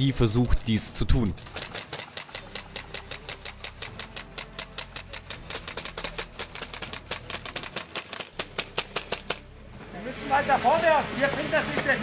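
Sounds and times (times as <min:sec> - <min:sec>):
airsoft rifles firing: 0:01.4 - 0:09.5.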